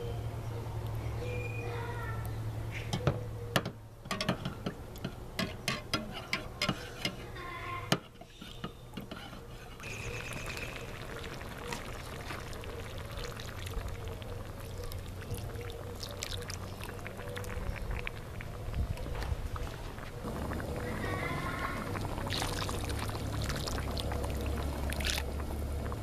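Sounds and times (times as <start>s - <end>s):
water pouring into pan: 9.8s - 18.0s, 20.2s - 26.0s
gas burner hissing: 19.8s - 26.0s.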